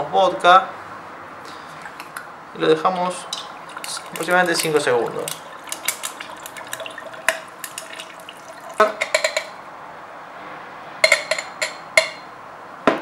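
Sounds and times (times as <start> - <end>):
liquid poured over ice: 2.8 - 9.5.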